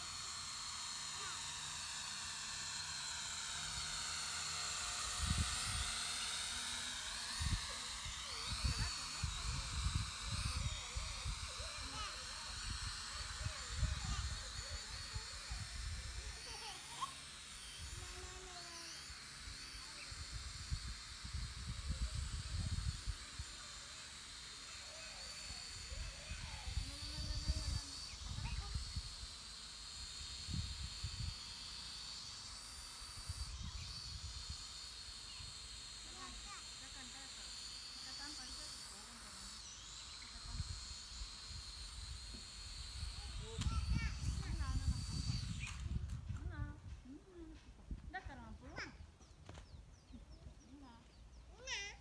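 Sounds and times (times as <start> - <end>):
drone propellers whirring: 0.0 - 52.0
wind buffeting microphone: 7.4 - 16.4, 42.8 - 48.8
high-pitched hiss: 30.0 - 46.0.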